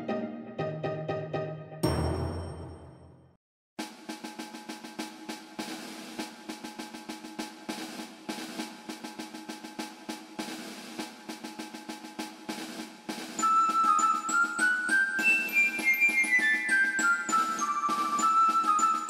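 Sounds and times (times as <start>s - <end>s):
music with quick drum beats: 3.8s - 19.0s.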